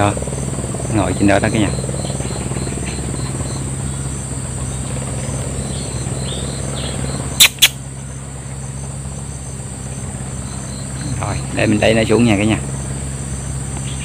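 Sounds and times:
insects chirring: 0.0 - 14.0
low hum: 0.0 - 14.0
sharp clicks: 7.4 - 7.8.

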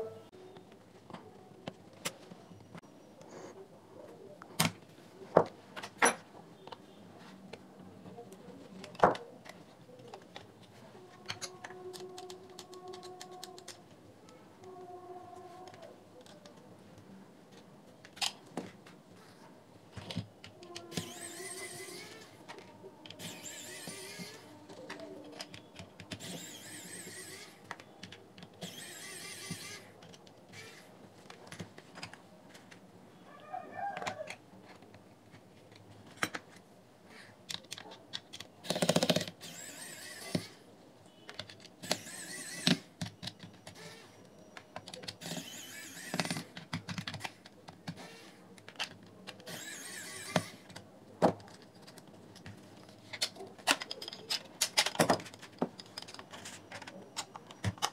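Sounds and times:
screwdriver and plastic clicks: 8.8 - 13.8, 37.5 - 40.6, 41.2 - 44.0, 44.6 - 57.9
small electric screwdriver whirring: 20.7 - 22.4, 23.0 - 24.5, 26.1 - 27.6, 28.6 - 29.9, 30.5 - 30.9, 38.6 - 40.6, 41.8 - 42.9, 43.8 - 44.2, 45.2 - 46.5, 47.9 - 48.4, 49.4 - 50.7
plastic parts clattering: 48.6 - 57.9.

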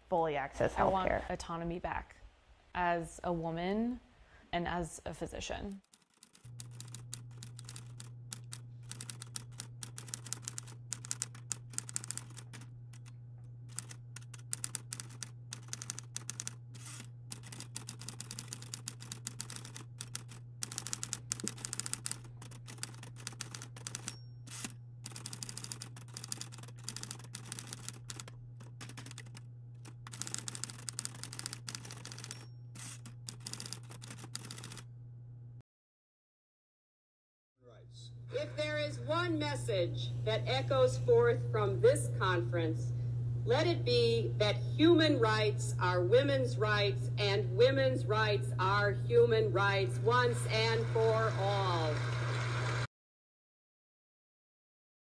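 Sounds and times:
keyboard typing clicks: 5.9 - 13.1, 13.7 - 34.8
steady low hum: 6.4 - 35.6, 37.6 - 51.7.

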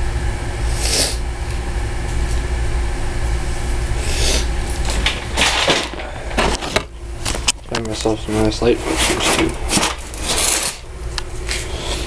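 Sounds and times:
low machinery hum: 0.0 - 12.0
tools rustling and scraping: 4.7 - 12.0.

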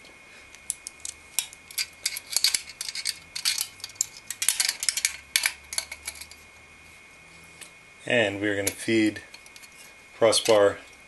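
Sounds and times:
metallic clicking and clinking: 0.7 - 6.4.

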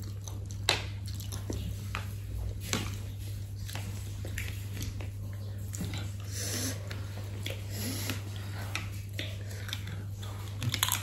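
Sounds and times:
steady low hum: 0.0 - 11.0
sniffing and breathing: 6.0 - 10.6.

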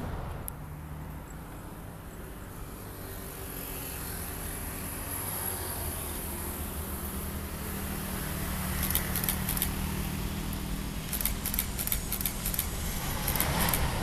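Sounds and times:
road traffic rumble: 0.0 - 14.0
camera shutter clicks: 8.8 - 9.8, 11.0 - 13.9.

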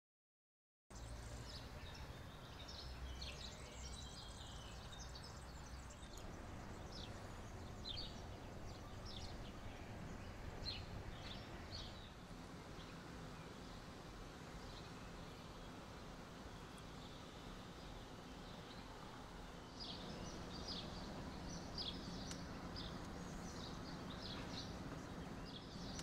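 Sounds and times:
birds chirping and singing: 1.0 - 12.2, 19.6 - 26.0
low steady background rumble: 1.0 - 26.0.

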